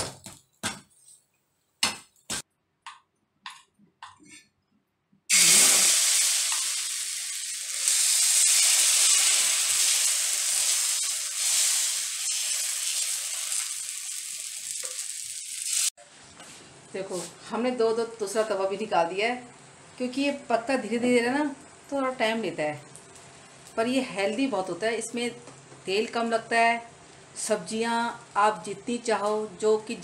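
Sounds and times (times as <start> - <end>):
batter sizzling in oil: 5.3 - 16.0.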